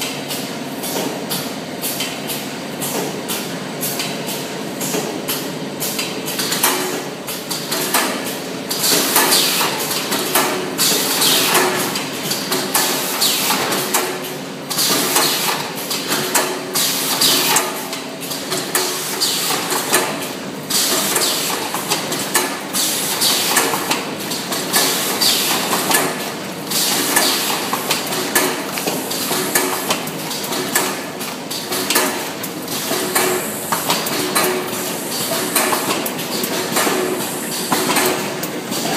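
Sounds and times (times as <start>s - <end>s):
steady motor hum: 9.7s - 38.9s.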